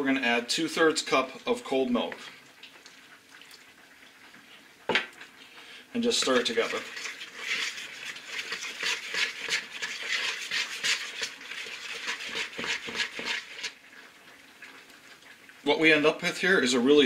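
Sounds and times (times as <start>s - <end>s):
metal spoon scraping mixing bowl: 6.1s - 13.8s.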